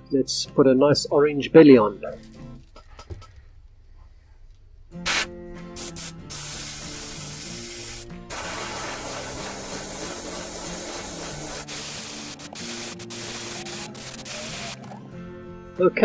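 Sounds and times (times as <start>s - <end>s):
airbrush hissing: 5.0s - 15.0s.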